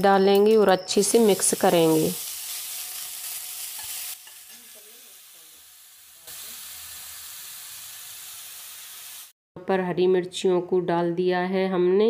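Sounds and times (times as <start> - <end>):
onions sizzling in hot oil: 0.8 - 9.4.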